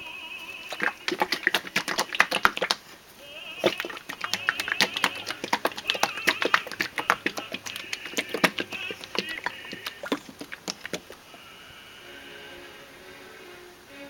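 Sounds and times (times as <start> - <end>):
plastic containers knocking: 0.7 - 2.9, 3.6 - 11.3.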